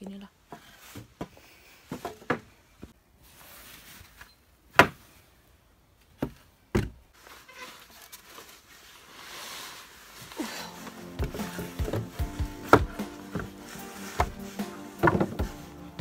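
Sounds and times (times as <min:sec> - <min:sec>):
wooden boards knocking: 0:11.2 - 0:13.6, 0:14.2 - 0:14.4, 0:15.0 - 0:15.6.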